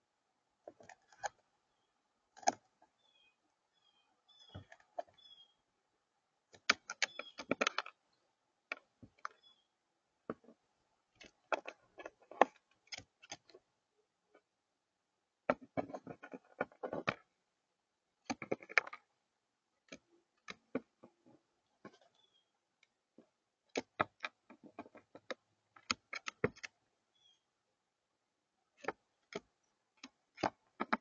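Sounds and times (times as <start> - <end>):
crow beak pecking on tabletop: 0.6 - 1.4, 2.4 - 3.0, 4.3 - 5.4, 6.5 - 8.0, 8.7 - 9.6, 10.2 - 13.6, 15.5 - 17.3, 18.2 - 19.1, 19.8 - 26.8, 28.8 - 31.0.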